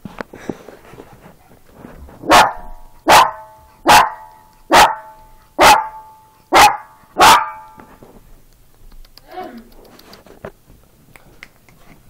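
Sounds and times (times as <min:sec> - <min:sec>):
small dog barking: 0:02.2 - 0:07.8.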